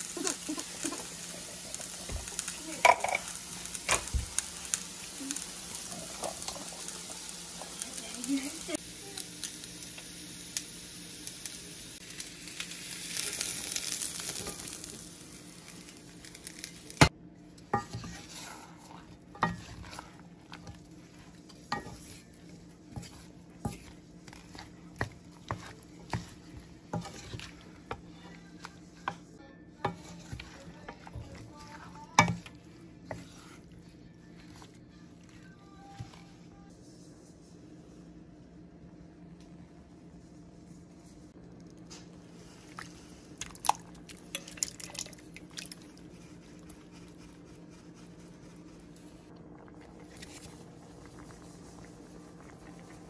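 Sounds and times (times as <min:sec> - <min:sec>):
food sizzling in a skillet: 0:00.0 - 0:36.6
spatula scraping a pan: 0:17.6 - 0:36.4.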